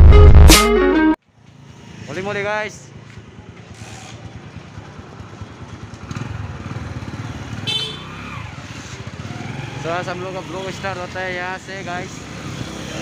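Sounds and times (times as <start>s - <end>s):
motorbike engine running: 3.0s - 8.1s.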